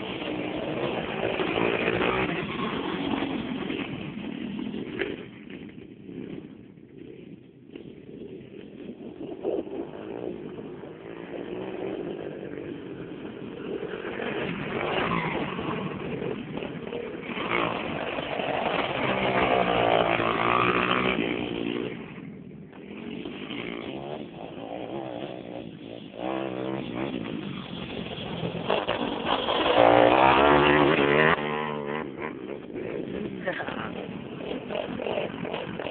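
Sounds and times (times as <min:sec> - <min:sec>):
motorbike engine revving: 0:00.0 - 0:07.2, 0:07.8 - 0:35.9.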